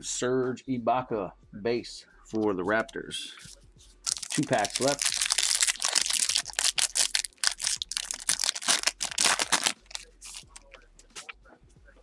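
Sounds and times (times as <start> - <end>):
foil wrapper crinkling: 4.1 - 10.8.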